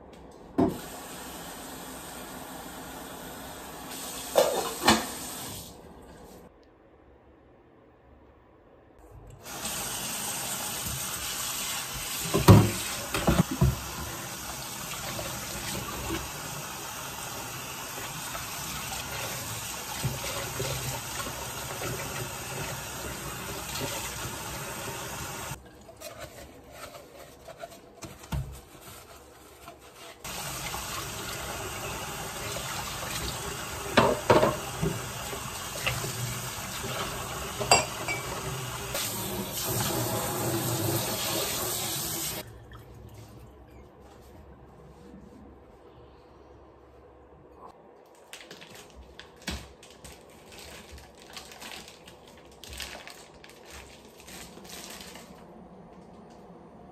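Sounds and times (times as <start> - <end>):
dishes clattering: 4.3 - 5.1, 37.6 - 38.5.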